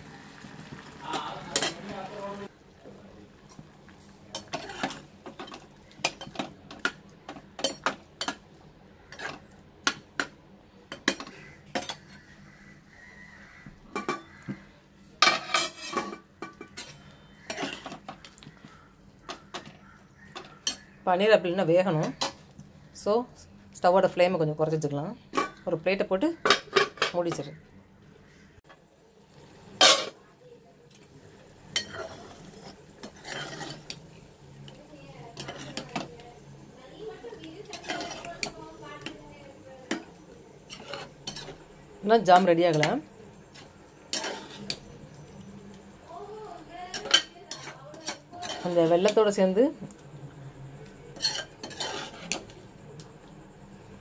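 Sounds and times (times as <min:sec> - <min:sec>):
metal ladle scraping pan: 0:04.3 - 0:06.9, 0:09.1 - 0:10.0, 0:10.9 - 0:12.3, 0:15.2 - 0:18.4, 0:19.3 - 0:21.0, 0:29.8 - 0:30.2, 0:31.7 - 0:36.2, 0:37.6 - 0:39.2, 0:39.8 - 0:45.0, 0:46.9 - 0:49.4, 0:51.1 - 0:52.6.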